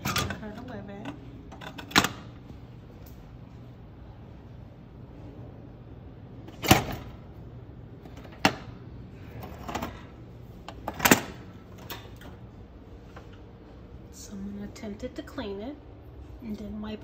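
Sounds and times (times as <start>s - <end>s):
oven door opening: 6.4s - 7.3s.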